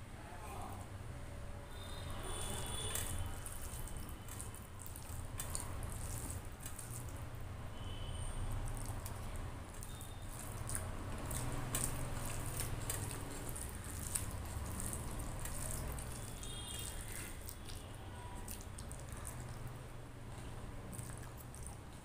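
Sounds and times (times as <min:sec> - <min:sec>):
fingers squishing rice: 0:02.6 - 0:07.3, 0:08.5 - 0:19.8
person chewing: 0:02.9 - 0:07.3, 0:08.6 - 0:22.0.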